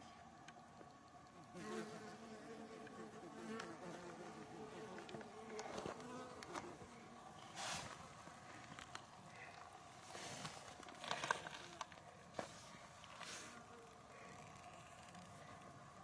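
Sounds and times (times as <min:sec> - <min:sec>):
flying insect buzzing: 0:01.4 - 0:07.2.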